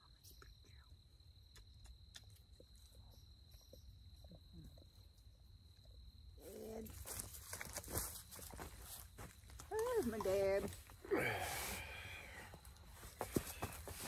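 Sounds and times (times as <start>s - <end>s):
footsteps on dry leaf litter: 6.9s - 10.7s
rustling in dry leaves: 6.9s - 12.4s.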